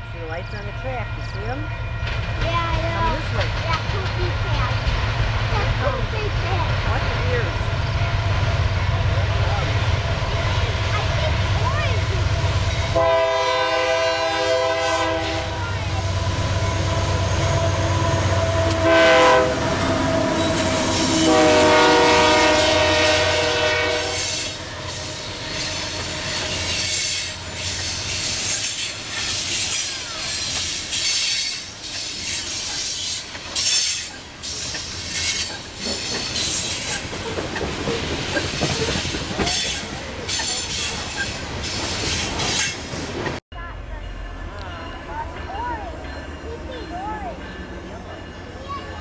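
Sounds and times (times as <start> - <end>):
diesel locomotive engine rumbling: 0.0 - 49.0
train wheels clattering over rails: 0.3 - 13.2, 15.6 - 43.4
train horn blasts: 12.4 - 28.9.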